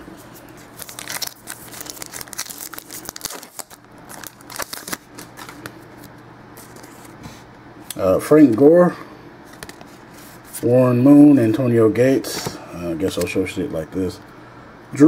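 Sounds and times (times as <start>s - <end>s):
cards rustling and flicking: 0.3s - 7.2s
wrapper crinkling: 0.6s - 7.1s.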